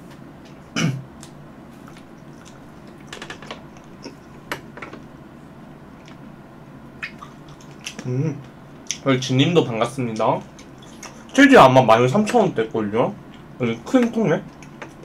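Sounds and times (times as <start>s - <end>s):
person chewing cherries: 1.1s - 4.5s.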